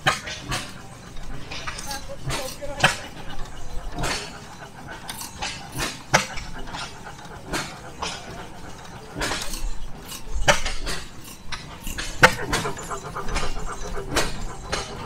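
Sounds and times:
gas engine exhaust popping: 11.9 - 15.0.

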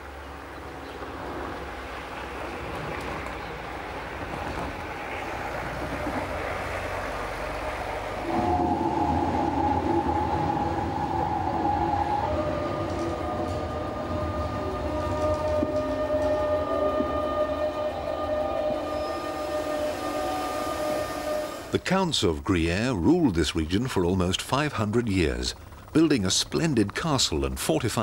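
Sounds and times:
electric train rumbling: 0.0 - 28.0
train motor whining: 8.2 - 21.8.

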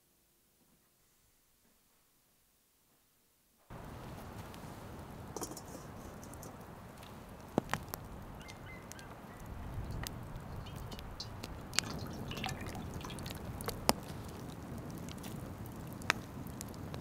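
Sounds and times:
wood fire crackling and popping: 3.7 - 17.0
oil pouring into frying pan: 10.4 - 14.0.

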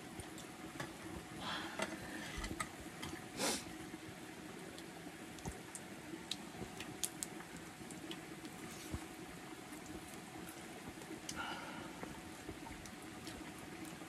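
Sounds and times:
food simmering with bubbling hiss: 0.0 - 14.0.

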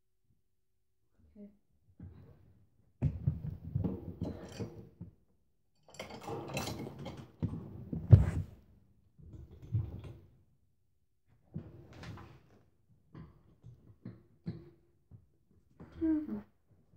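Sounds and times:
gym machine rattling and clunking: 5.9 - 7.7.

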